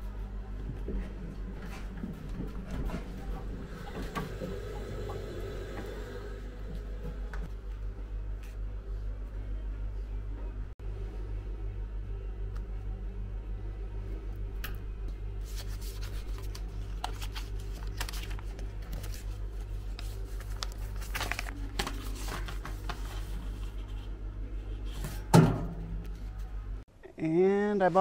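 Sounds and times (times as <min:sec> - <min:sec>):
steady low hum: 0:00.0 - 0:27.0
paper envelope rustling: 0:15.4 - 0:24.1.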